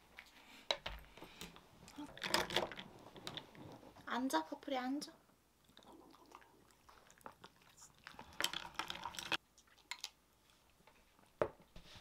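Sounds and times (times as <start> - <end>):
dog crunching a treat: 6.9 - 10.2.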